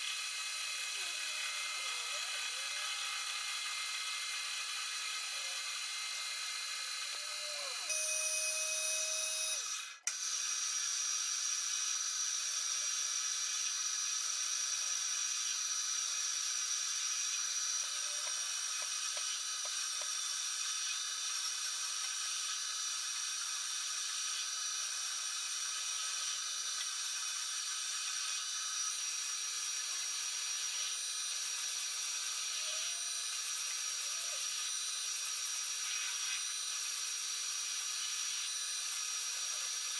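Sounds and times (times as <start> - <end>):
metal lathe whining: 0.0 - 39.9
hiss of metal cutting: 35.1 - 36.6.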